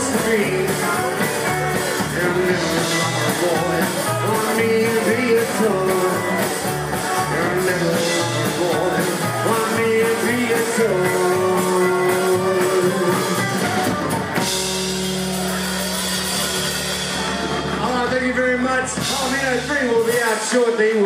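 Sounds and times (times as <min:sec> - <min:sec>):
rockabilly band playing: 0:00.0 - 0:21.0.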